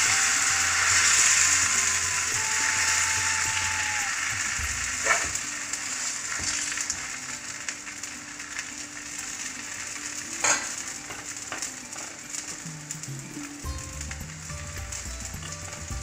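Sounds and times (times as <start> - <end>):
pancake sizzling in oil: 0.0 - 16.0.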